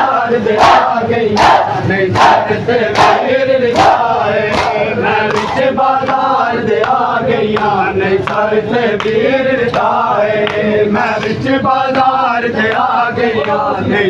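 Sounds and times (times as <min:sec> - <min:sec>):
men chanting in unison: 0:00.0 - 0:14.0
chest slaps in steady beat: 0:02.2 - 0:10.6.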